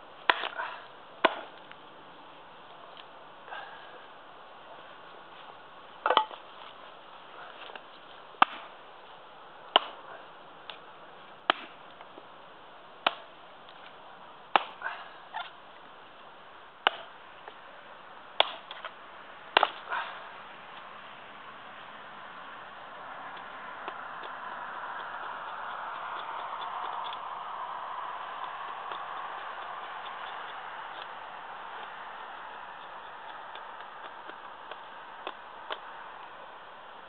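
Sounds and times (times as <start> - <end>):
axe chopping kindling on wood block: 0.2 - 1.8, 6.0 - 6.4, 8.4 - 8.8, 9.7 - 10.1, 11.4 - 12.2, 13.0 - 13.4, 14.5 - 15.6, 16.8 - 17.2, 18.4 - 19.0, 19.6 - 20.2.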